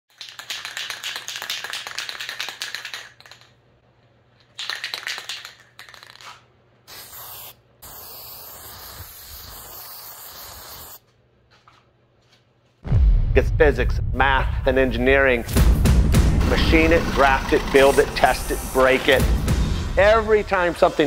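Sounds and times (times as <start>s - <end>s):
spray can rattling: 0.1s - 3.6s, 4.4s - 11.0s
spray paint hissing: 4.6s - 11.0s.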